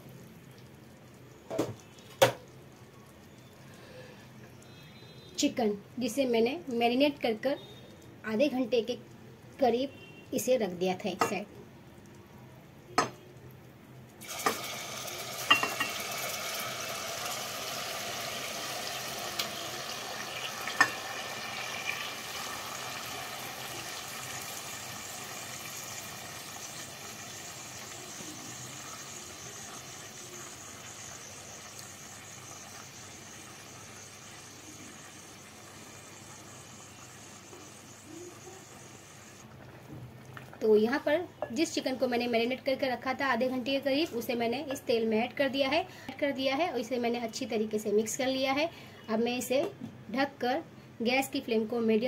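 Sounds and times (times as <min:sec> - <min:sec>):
chicken sizzling in hot oil: 0:14.2 - 0:39.7.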